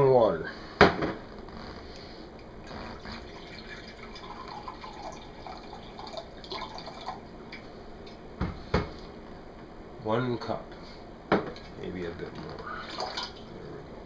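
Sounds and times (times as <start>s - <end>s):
water gurgling: 2.6s - 7.4s, 11.6s - 13.9s
water pouring into glass: 3.0s - 7.3s.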